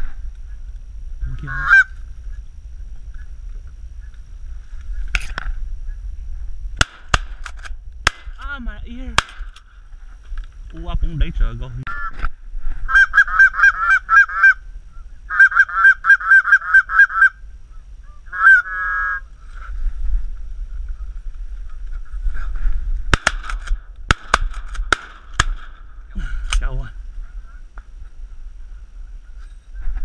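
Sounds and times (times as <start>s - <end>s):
geese honking: 1.4s - 2.0s, 11.9s - 12.2s, 12.9s - 14.6s, 15.3s - 17.4s, 18.0s - 19.3s
shotgun shots: 6.8s - 8.4s, 9.2s - 9.6s, 23.1s - 25.8s.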